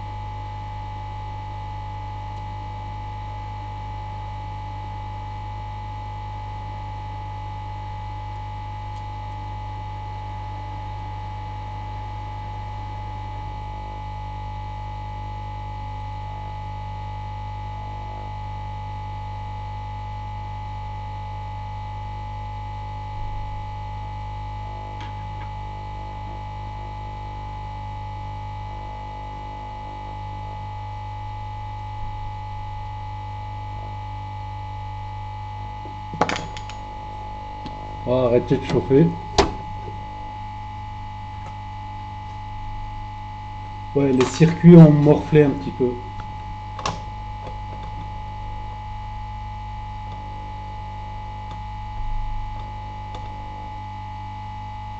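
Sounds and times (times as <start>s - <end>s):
hot air station humming with whine: 23.9s - 54.9s.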